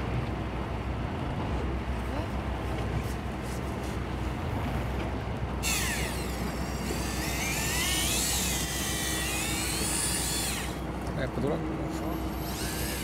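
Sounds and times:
low boat hum: 0:00.0 - 0:13.0
electric fishing reel motor whining: 0:05.6 - 0:10.9, 0:12.2 - 0:13.0.

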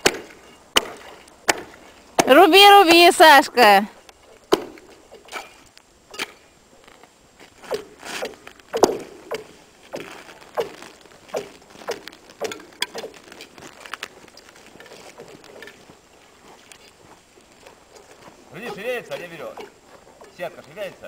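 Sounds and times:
hatchet chopping ice: 0:00.0 - 0:02.4.

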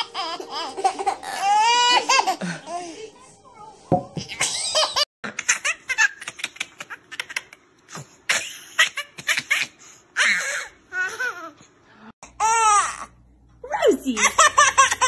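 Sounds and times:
toddler laughing: 0:08.3 - 0:11.6.

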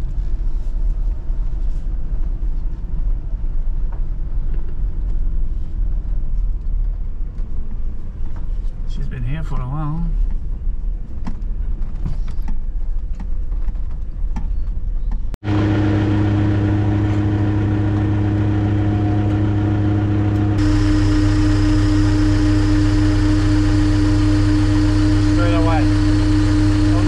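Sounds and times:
diesel engine idling: 0:15.4 - 0:27.0
steady engine drone: 0:15.4 - 0:27.0.

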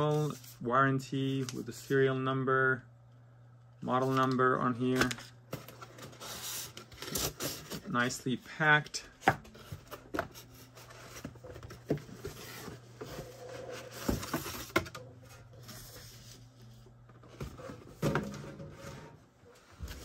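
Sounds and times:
faint low hum: 0:00.0 - 0:20.0
cardboard rustling: 0:09.0 - 0:20.0.

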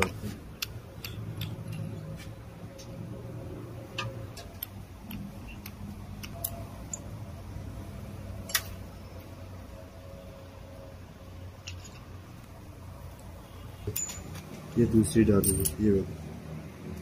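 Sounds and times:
steady low hum: 0:00.0 - 0:17.0
small metal parts clicking: 0:00.5 - 0:02.2, 0:03.9 - 0:07.1, 0:08.4 - 0:08.8, 0:11.6 - 0:12.5.

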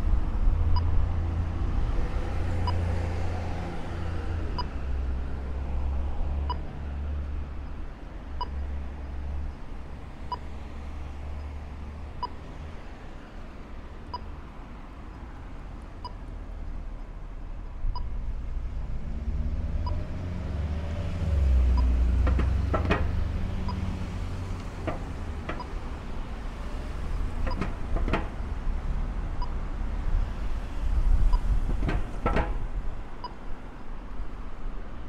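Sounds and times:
cars passing: 0:00.0 - 0:35.0
crossing signal beeping: 0:06.5 - 0:06.7, 0:08.4 - 0:10.5, 0:17.9 - 0:18.2, 0:21.7 - 0:25.9, 0:26.9 - 0:28.4.

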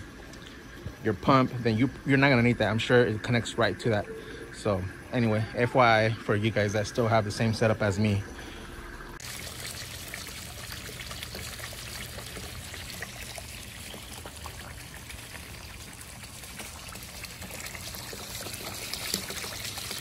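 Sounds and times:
water splashing into pool: 0:09.2 - 0:20.0.

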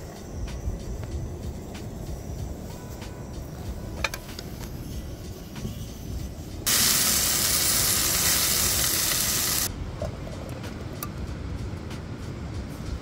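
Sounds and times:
low steady rumble: 0:00.0 - 0:13.0
steak sizzling in a pan: 0:06.7 - 0:09.7.

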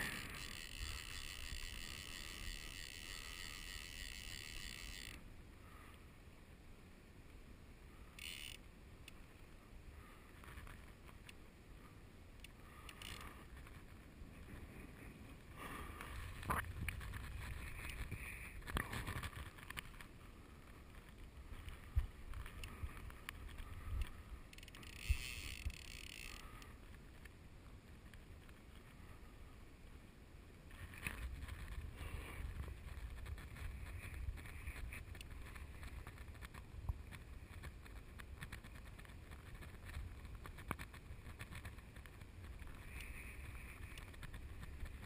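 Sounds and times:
wind rumble on microphone: 0:16.2 - 0:19.7.

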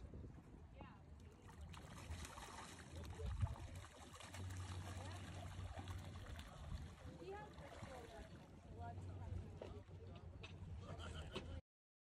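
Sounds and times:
low steady rumble: 0:00.0 - 0:10.9
fish splashing at surface: 0:01.6 - 0:06.9.

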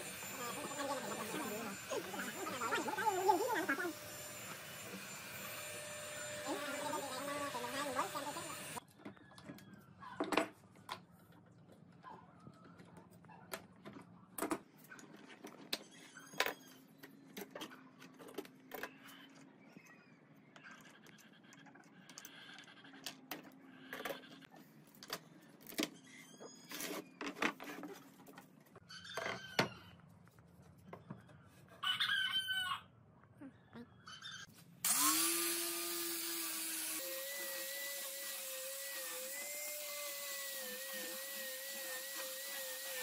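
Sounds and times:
angle grinder whining: 0:00.0 - 0:08.8, 0:34.8 - 0:43.0
rooster crowing: 0:31.8 - 0:32.9.

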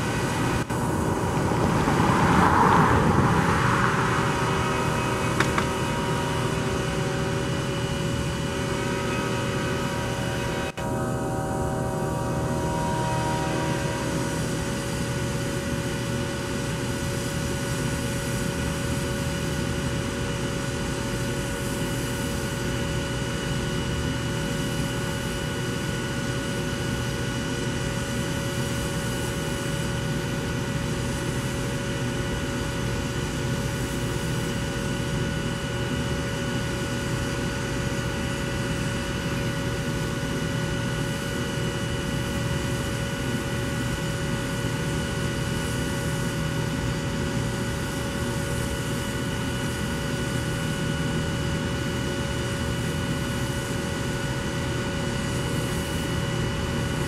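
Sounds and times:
high whining tones: 0:00.0 - 0:16.9
diesel locomotive engine running: 0:00.0 - 0:57.0.

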